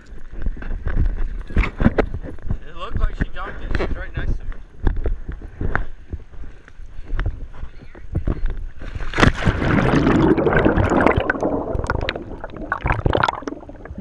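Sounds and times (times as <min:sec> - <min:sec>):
underwater bubbles and sloshing: 0:00.0 - 0:14.0
pool water splashing: 0:08.9 - 0:14.0.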